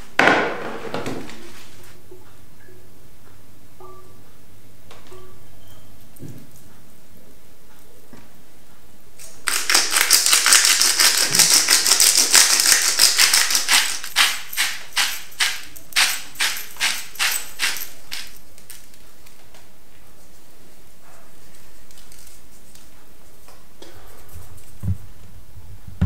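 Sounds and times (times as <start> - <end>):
spice grinder crunching: 9.2 - 18.8.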